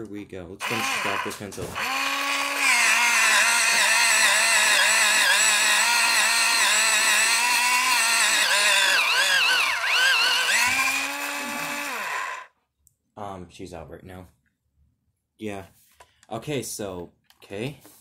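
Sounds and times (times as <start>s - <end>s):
electric pencil sharpener grinding: 0.6s - 12.5s.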